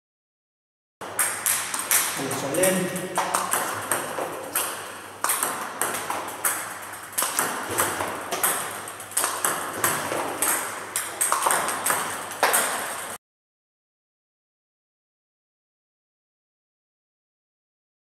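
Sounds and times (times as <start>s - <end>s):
ball bouncing on table: 1.0s - 13.0s
ball clicking off racket: 1.0s - 13.2s.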